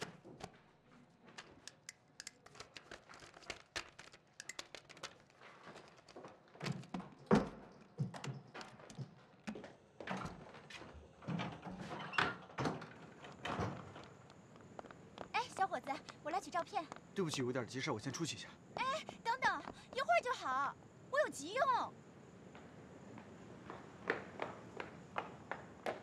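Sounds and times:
paper rustling with clicks: 0:01.3 - 0:06.5
door: 0:11.3 - 0:14.0.

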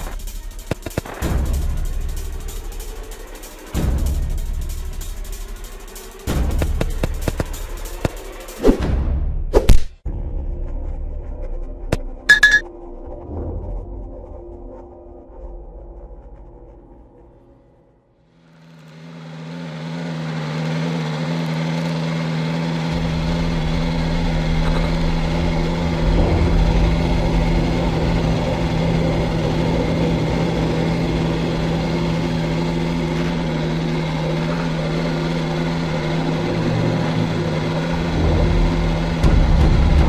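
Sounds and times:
engine running steadily: 0:00.0 - 0:08.9, 0:11.9 - 0:12.6, 0:18.2 - 0:40.0
deep rumble: 0:22.9 - 0:40.0.

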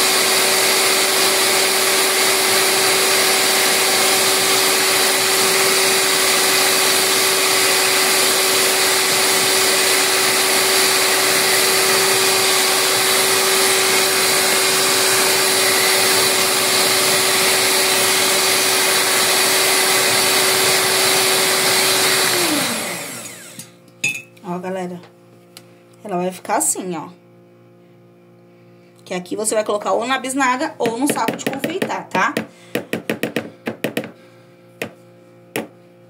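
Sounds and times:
stand mixer motor whine: 0:00.0 - 0:23.7.

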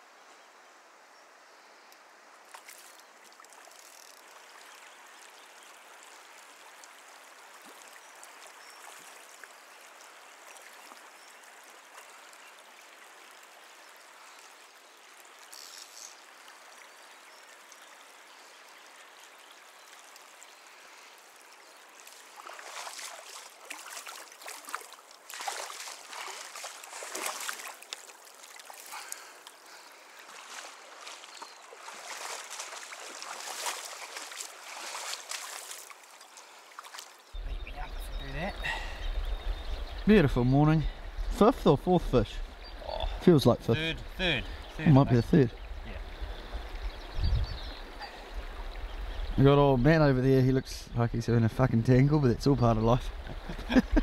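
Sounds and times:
stream running over stones: 0:01.8 - 0:54.0
water splashing: 0:19.6 - 0:39.0.

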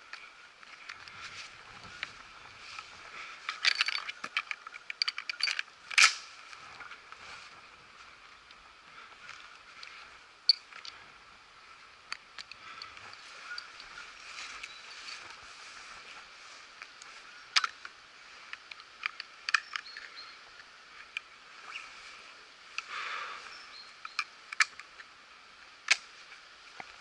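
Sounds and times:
faint outdoor background: 0:00.0 - 0:27.0
sharp clicks and small cracks: 0:02.8 - 0:06.9, 0:09.3 - 0:11.0, 0:12.0 - 0:14.0, 0:16.8 - 0:21.3, 0:24.0 - 0:25.1, 0:25.8 - 0:26.1.

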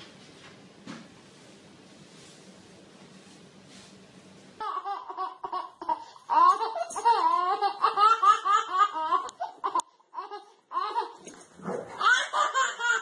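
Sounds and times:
faint room hum: 0:00.0 - 0:13.0
baby laughing: 0:04.6 - 0:11.4, 0:12.0 - 0:13.0.

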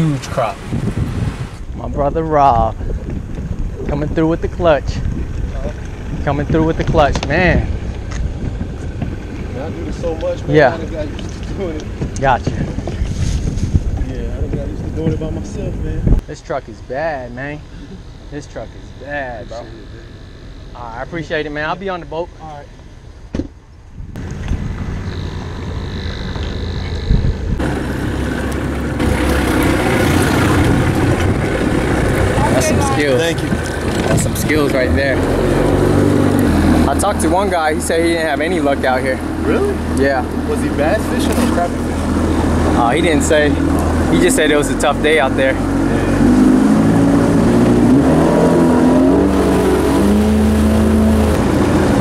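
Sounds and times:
water noise: 0:00.0 - 0:16.2, 0:24.1 - 0:52.0
wind noise on microphone: 0:00.0 - 0:16.3, 0:23.3 - 0:36.9
pickup truck engine idling: 0:24.2 - 0:34.7
motorboat motor running: 0:24.2 - 0:52.0.

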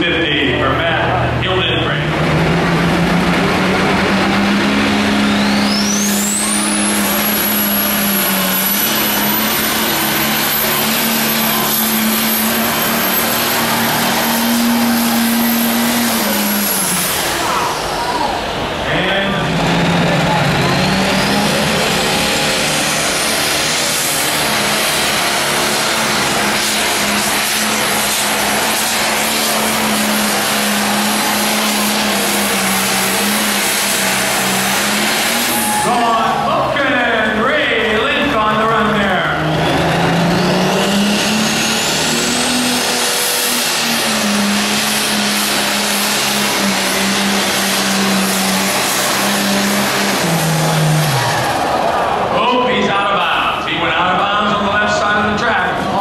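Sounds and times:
tractor engine running under load: 0:00.0 - 0:56.0.

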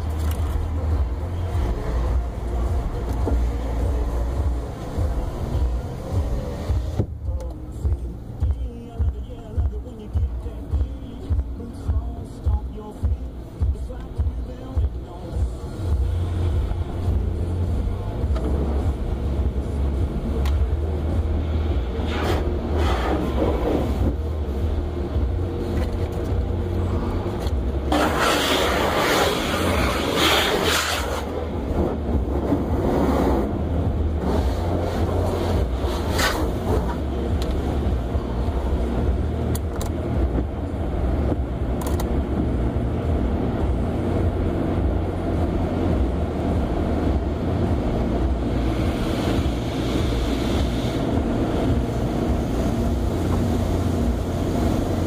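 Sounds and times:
water spraying on car: 0:00.0 - 0:10.1, 0:10.8 - 0:55.0
steady low rumble: 0:00.0 - 0:55.0
brushes sweeping over car: 0:27.9 - 0:31.2.

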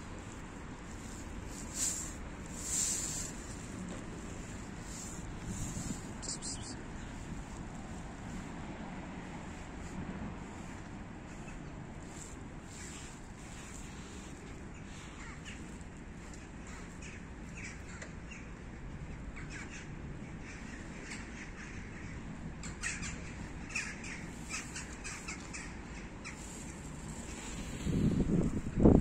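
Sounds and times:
steady low rumble: 0:00.0 - 0:21.0.

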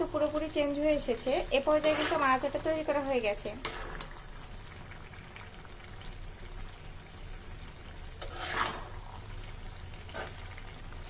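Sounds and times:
faint sizzle: 0:00.0 - 0:11.0
metal spatula scraping pan: 0:01.6 - 0:02.7, 0:03.5 - 0:04.1, 0:08.2 - 0:09.2, 0:10.0 - 0:10.6.

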